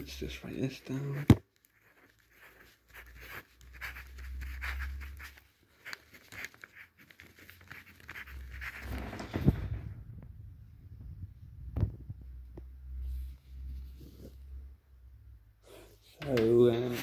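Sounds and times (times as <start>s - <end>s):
ballpoint pen scratching on paper: 0.3s - 9.0s
low handling rumble: 8.8s - 12.5s.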